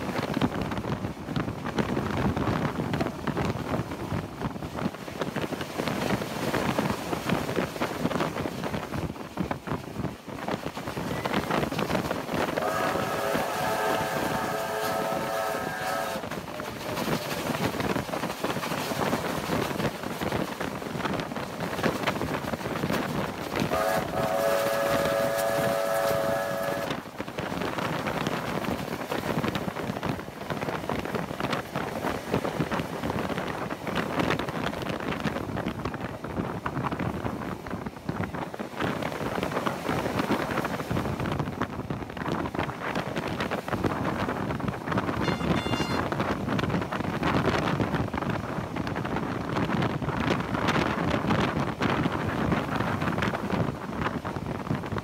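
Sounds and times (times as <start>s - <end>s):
steam locomotive running at speed: 0.0s - 55.0s
wind on microphone: 0.0s - 55.0s
chord-toned steam whistle: 12.6s - 16.3s, 23.7s - 27.0s, 45.2s - 46.1s.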